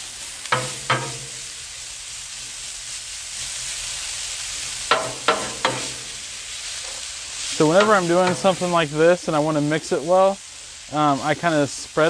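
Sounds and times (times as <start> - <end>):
hash browns sizzling on griddle: 0.0 - 12.0
metal spatula clinking on griddle: 0.5 - 1.4, 4.9 - 6.1.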